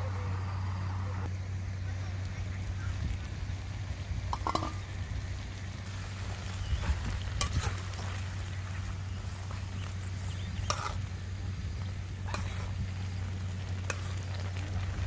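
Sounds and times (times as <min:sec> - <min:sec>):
food sizzling in syrup: 0:02.1 - 0:15.0
metal spoon stirring: 0:10.6 - 0:11.0, 0:12.2 - 0:12.8, 0:13.8 - 0:14.2.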